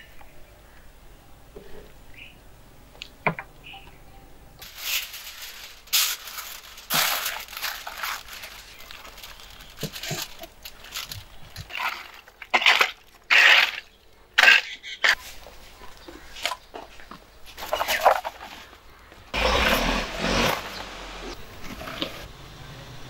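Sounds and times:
aluminium foil crinkling: 4.6 - 13.9
foil rustling and scraping: 4.6 - 16.4, 17.5 - 18.8.

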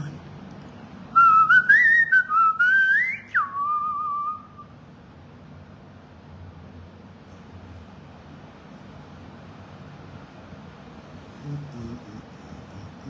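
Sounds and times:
person whistling: 1.2 - 4.7.

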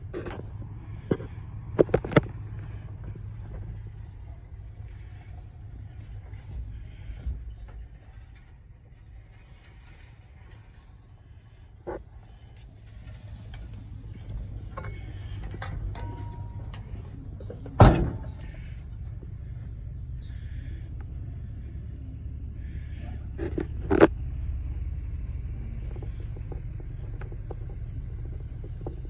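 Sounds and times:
steady low rumble: 0.0 - 29.0
truck door slamming: 17.7 - 18.5.

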